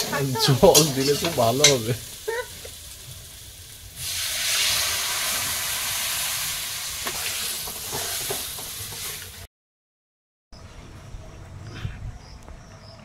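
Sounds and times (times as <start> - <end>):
water sizzling in hot pan: 0.0 - 9.5.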